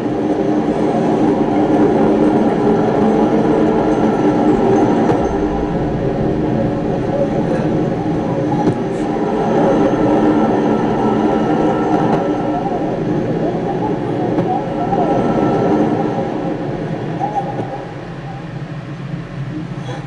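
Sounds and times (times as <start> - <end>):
faint wavering tones: 0.0 - 20.0
rumbling drone: 0.0 - 20.0.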